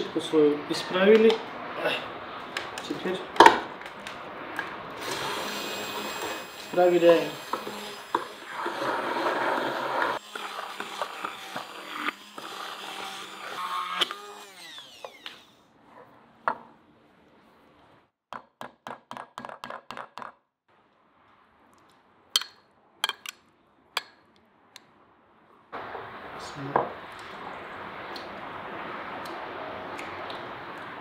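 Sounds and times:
immersion blender running: 5.0 - 15.5.

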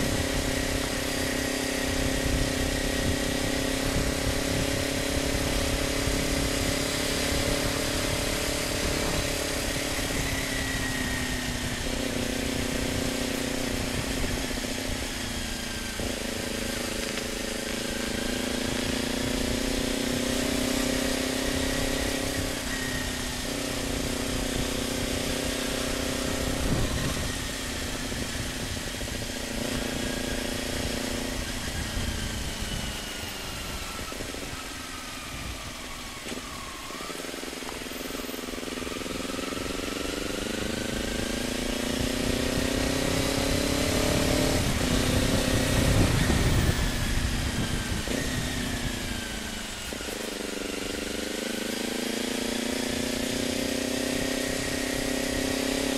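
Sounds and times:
wind rumble on microphone: 0.0 - 17.8, 21.3 - 36.7, 39.6 - 50.1
motorcycle engine while riding: 0.0 - 55.9.

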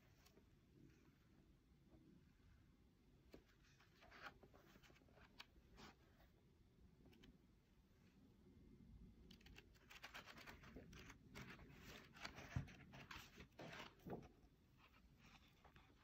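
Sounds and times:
book pages flipping: 3.3 - 6.0, 9.3 - 16.0.

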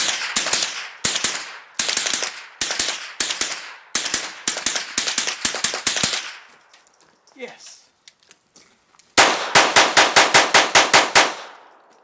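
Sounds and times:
rifle gunshots: 0.0 - 6.4, 9.2 - 11.7.

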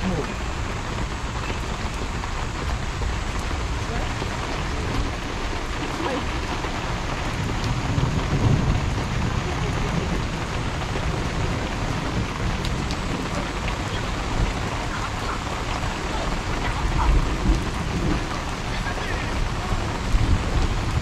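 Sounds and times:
heavy rain on a wet street: 0.0 - 21.0.

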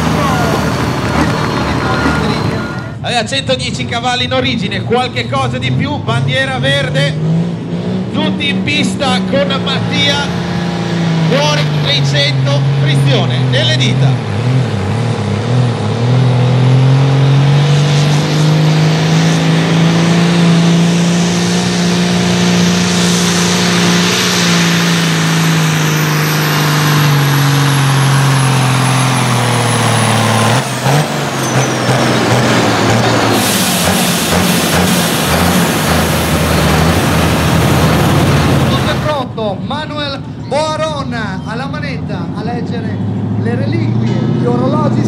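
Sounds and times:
tractor diesel engine under load: 0.0 - 45.0.

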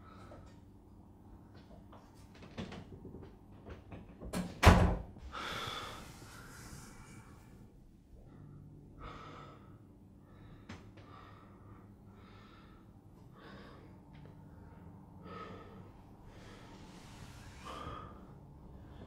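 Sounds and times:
low steady hum: 0.0 - 19.0
person breathing heavily: 5.2 - 19.0.

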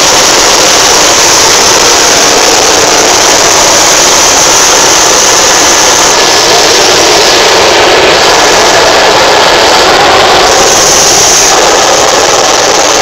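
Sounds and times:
helicopter cabin roar: 0.0 - 13.0.

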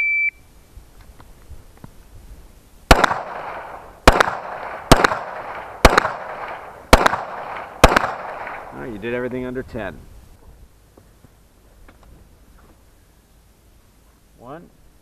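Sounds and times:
pistol shots with echo: 2.9 - 8.8.

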